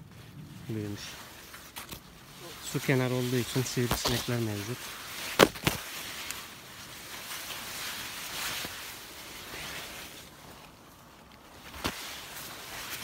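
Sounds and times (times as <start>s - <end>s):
sunflower leaves rustling: 0.0s - 13.0s.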